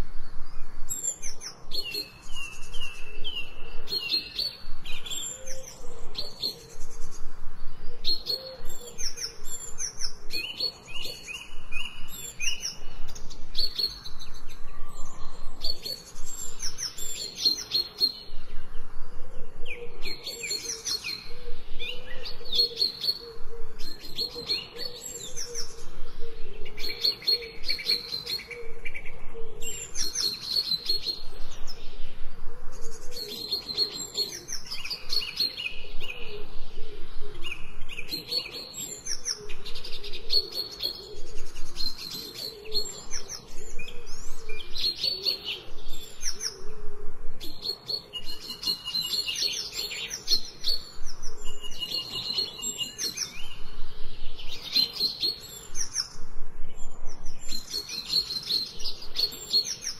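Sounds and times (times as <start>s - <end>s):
songbirds chirping and trilling: 0.0s - 59.9s.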